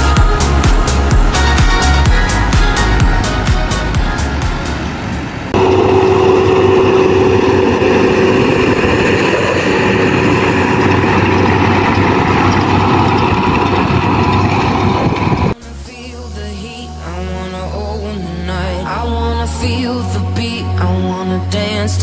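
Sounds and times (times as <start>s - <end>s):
constant machine whine: 0.0s - 15.6s
tractor engine droning: 0.0s - 15.6s.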